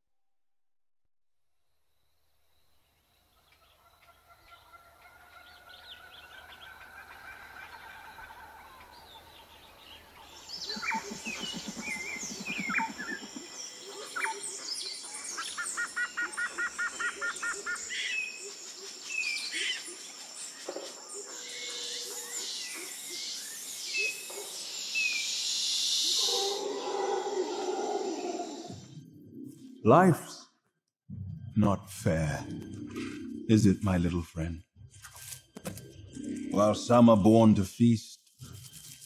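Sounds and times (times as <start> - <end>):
birds chirping and calling: 3.4 - 28.9.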